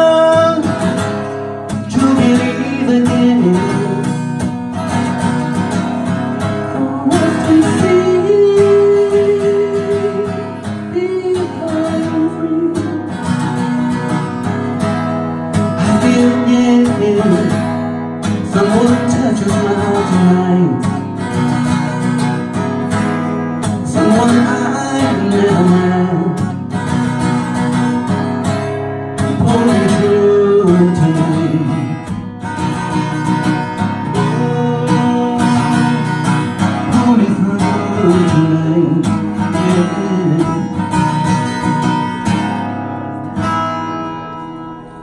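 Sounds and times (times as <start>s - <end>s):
person singing: 0.0s - 4.3s, 6.4s - 13.5s, 15.8s - 17.7s, 18.3s - 21.0s, 23.7s - 26.6s, 29.3s - 32.2s, 33.9s - 41.2s
acoustic guitar strumming: 0.0s - 45.0s.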